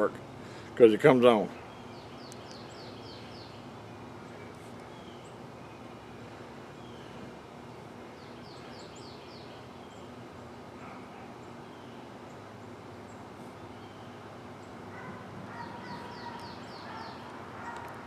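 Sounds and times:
steady low hum: 0:00.0 - 0:18.0
small birds chirping: 0:00.3 - 0:18.0
descending bird notes: 0:11.4 - 0:18.0.

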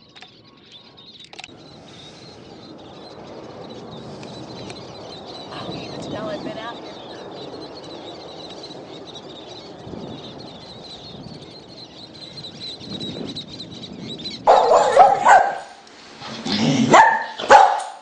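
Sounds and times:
dog barking: 0:14.5 - 0:15.8, 0:16.8 - 0:18.0.

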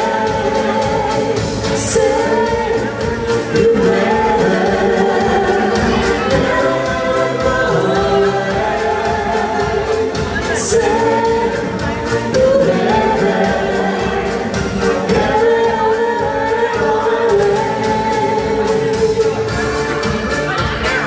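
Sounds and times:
keyboard accompaniment: 0:00.0 - 0:21.0.

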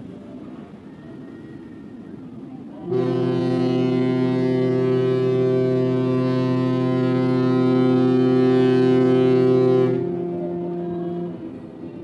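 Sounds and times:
ship's horn blast: 0:02.8 - 0:12.0.

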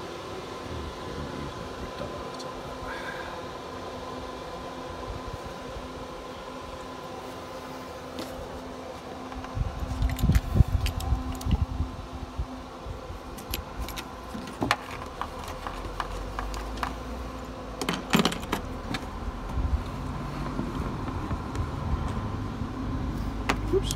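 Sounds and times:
steady electrical hum: 0:00.0 - 0:23.9.

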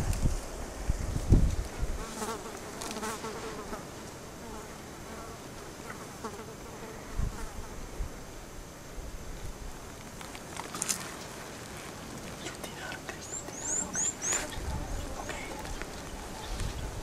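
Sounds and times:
flying insect buzzing: 0:02.0 - 0:07.9.

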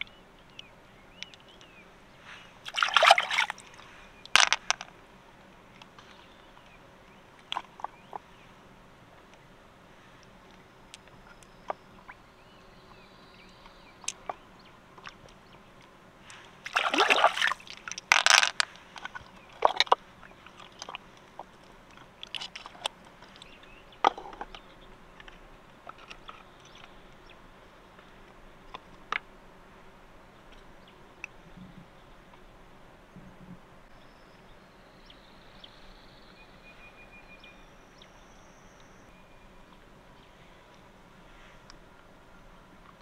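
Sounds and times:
wet squelching and sloshing: 0:02.6 - 0:04.5, 0:16.3 - 0:21.0.

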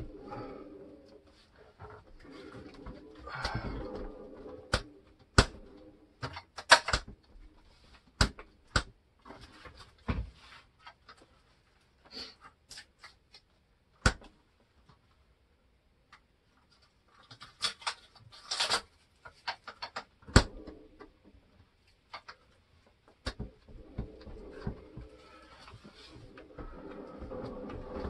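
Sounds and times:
scraping: 0:00.0 - 0:08.0, 0:23.4 - 0:28.0.

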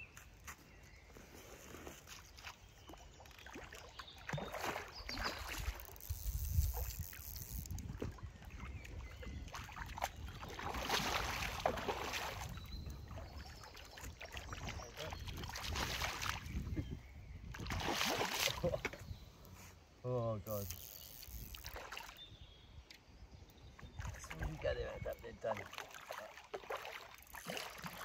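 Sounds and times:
fish splashing in water: 0:02.9 - 0:07.4, 0:09.4 - 0:16.5, 0:17.6 - 0:18.7, 0:25.6 - 0:28.0.

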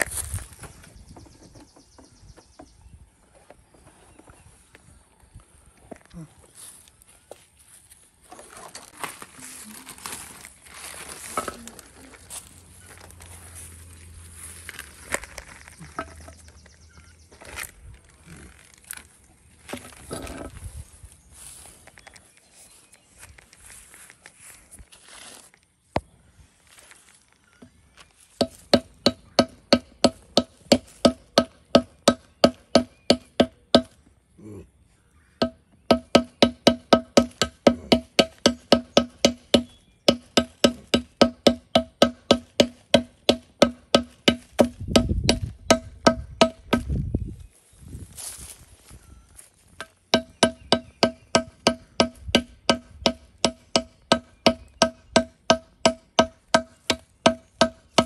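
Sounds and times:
plastic bags crinkling: 0:08.8 - 0:13.3, 0:17.6 - 0:19.2
hammer knocking on stone: 0:35.4 - 0:46.9, 0:49.8 - 0:58.0.

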